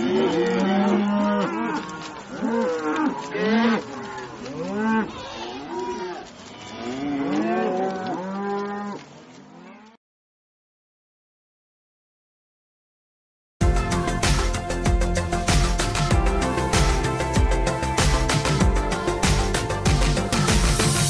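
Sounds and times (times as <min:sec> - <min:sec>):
cattle mooing: 0:00.0 - 0:10.0.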